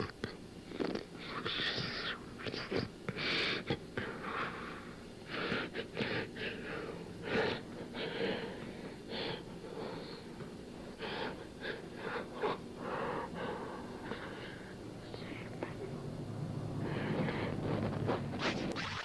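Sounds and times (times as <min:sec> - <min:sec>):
low steady hum: 0:00.0 - 0:19.0
person breathing hard: 0:01.2 - 0:14.9, 0:16.8 - 0:17.9.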